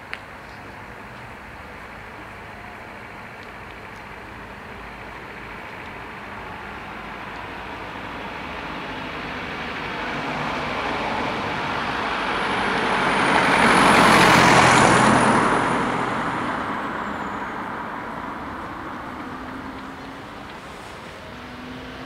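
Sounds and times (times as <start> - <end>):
car driving past: 8.4 - 22.0.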